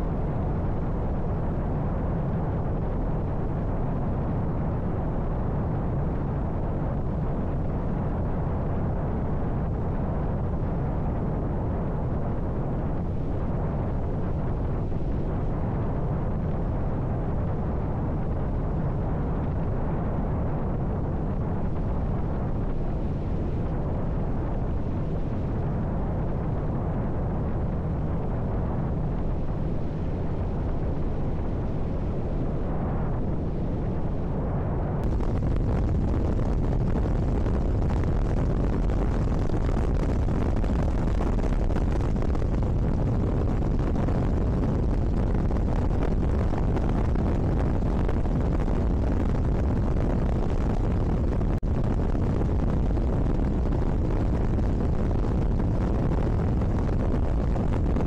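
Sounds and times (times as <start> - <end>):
deep low rumble: 0.0 - 58.0
wind rushing: 27.9 - 58.0.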